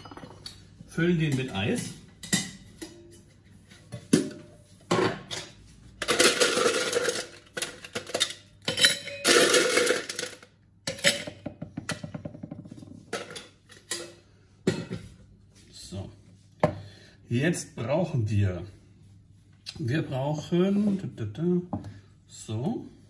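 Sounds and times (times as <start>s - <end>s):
ice cubes rattling into metal shaker: 6.0s - 10.5s.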